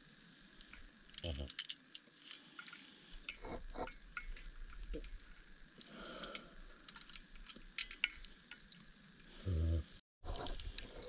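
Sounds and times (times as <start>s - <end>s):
low underwater hiss: 0.0s - 1.4s
faint underwater clicks and crackling: 0.2s - 9.4s, 10.3s - 11.0s.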